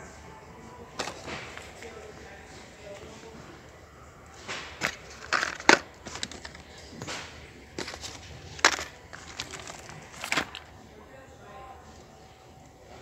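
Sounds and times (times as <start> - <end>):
packets rustling and knocking: 0.9 - 2.0, 4.3 - 10.8.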